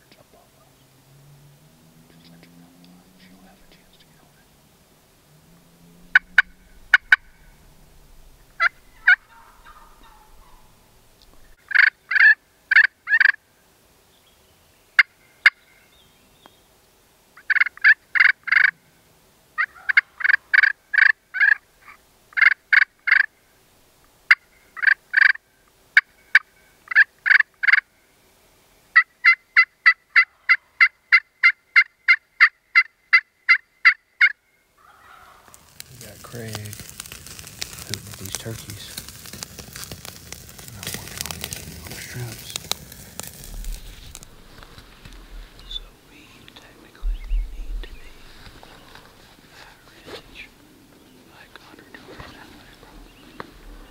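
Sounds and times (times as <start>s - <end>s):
turkey yelping: 5.8s - 13.4s, 17.4s - 18.7s, 19.6s - 23.3s, 26.0s - 27.8s, 29.0s - 35.8s.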